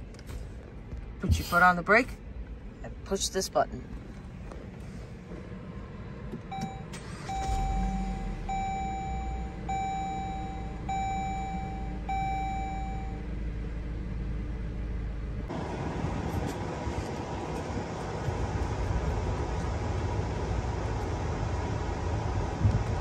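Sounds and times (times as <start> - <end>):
car engine starting and idling: 0.0 - 23.0
dashboard warning chime beeps: 6.5 - 13.2.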